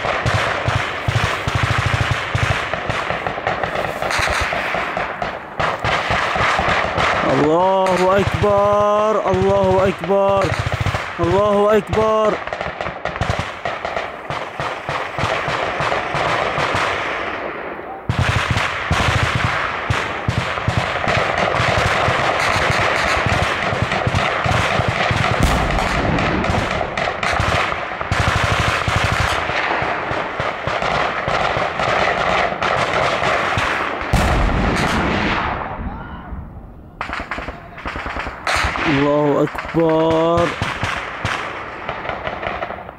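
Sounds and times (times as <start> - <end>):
rapid gunfire: 0.0 - 35.7, 37.0 - 42.9
heavy low boom: 25.4 - 27.3.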